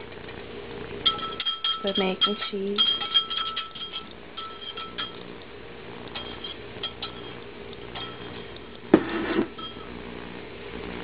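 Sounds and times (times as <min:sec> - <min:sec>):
metal fork clinking on bowl: 0:01.0 - 0:05.3, 0:06.1 - 0:08.8.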